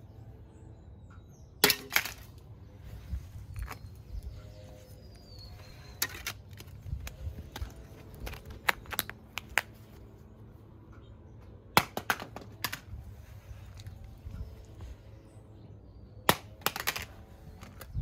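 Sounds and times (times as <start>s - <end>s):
phone hitting concrete and bouncing: 1.6s - 2.4s, 11.8s - 12.9s, 16.3s - 18.0s.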